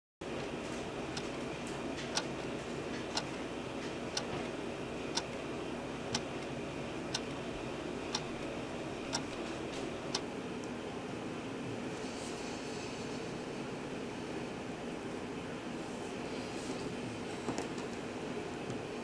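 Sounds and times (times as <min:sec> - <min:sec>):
wall clock ticking: 0:01.1 - 0:01.4, 0:02.0 - 0:03.4, 0:04.1 - 0:04.4, 0:07.1 - 0:07.3, 0:08.1 - 0:08.5, 0:09.1 - 0:10.3.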